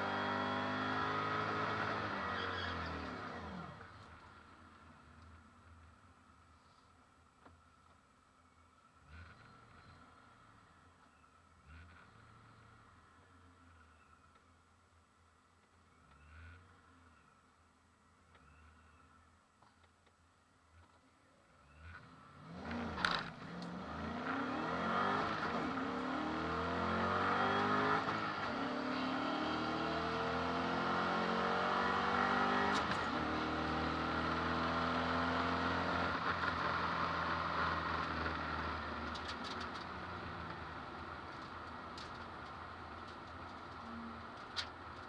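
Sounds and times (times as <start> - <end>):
car engine at full throttle: 0.0 - 4.3, 21.8 - 45.0.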